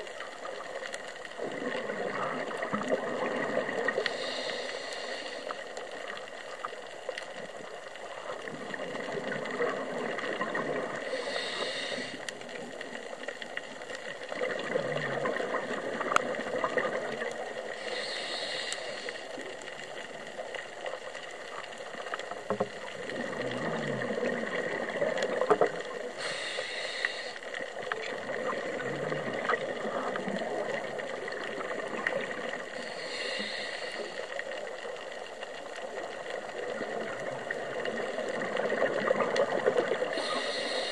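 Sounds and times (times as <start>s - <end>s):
faint clicks: 0.0s - 40.9s
regulator breathing hiss: 4.0s - 6.0s, 11.0s - 12.4s, 17.7s - 19.7s, 26.2s - 27.7s, 32.7s - 34.6s, 40.0s - 40.9s.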